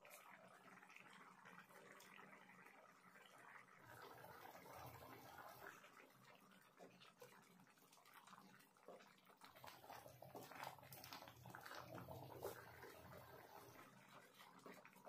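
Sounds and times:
wet stirring in a pan: 3.3 - 15.0.

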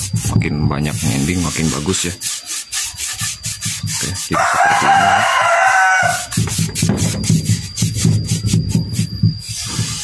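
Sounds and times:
paint brush scrubbing on wood: 0.0 - 10.0
rooster crowing: 4.1 - 6.4.

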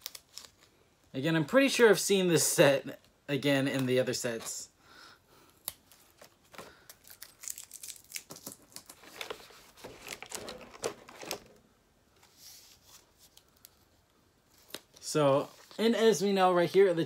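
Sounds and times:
packaging crinkling and rustling: 0.0 - 0.8, 5.7 - 11.6.

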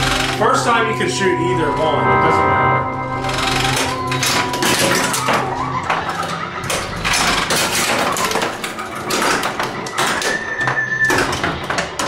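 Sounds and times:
pinball flippers and ball clacking: 0.0 - 0.8, 3.2 - 12.0
held electronic tone: 0.0 - 7.0
pinball electronic sounds: 0.0 - 12.0.

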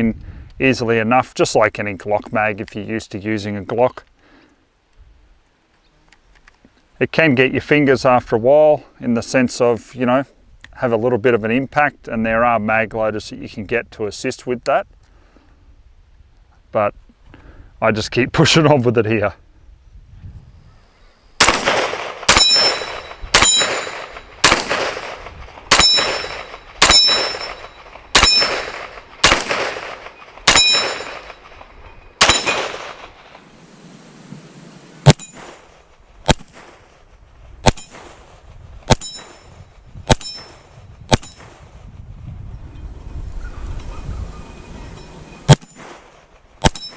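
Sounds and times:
pistol shots echoing: 21.4 - 33.2
steel target ringing: 22.3 - 24.5, 25.7 - 29.4, 30.5 - 33.0, 35.0 - 35.6, 39.0 - 39.6, 40.2 - 41.4, 46.7 - 46.9.

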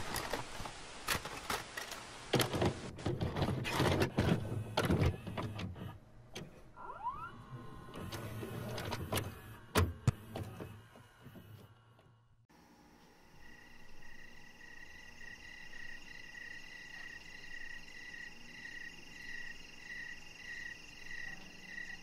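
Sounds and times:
vcr motor whine: 6.8 - 15.4.

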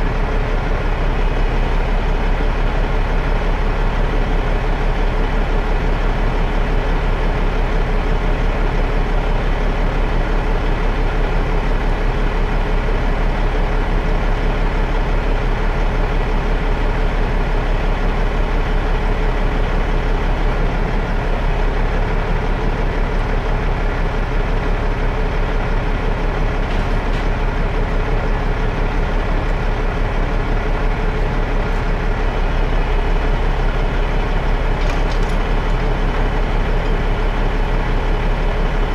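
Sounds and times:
diesel engine running: 0.0 - 38.9.

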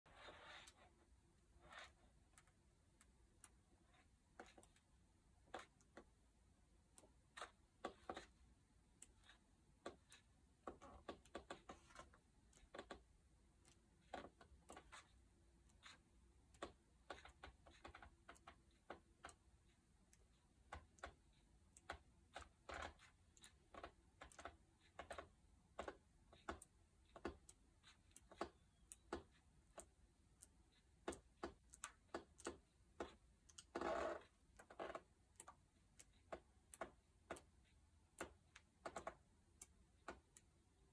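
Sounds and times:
book pages turning: 0.1 - 0.8.

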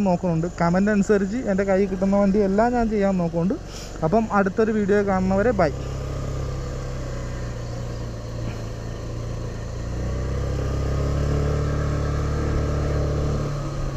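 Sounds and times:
road and wind noise: 0.0 - 13.9
scooter engine running: 0.0 - 13.9.

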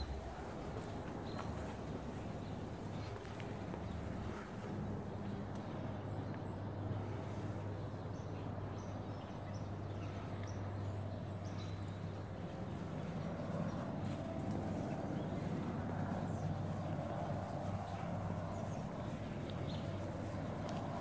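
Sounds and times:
footsteps on brick path: 0.0 - 5.8
low outdoor rumble: 0.0 - 21.0.

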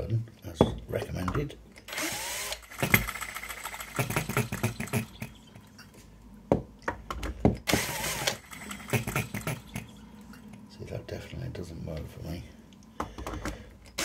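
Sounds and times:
small engine whirring spin: 1.9 - 5.3.

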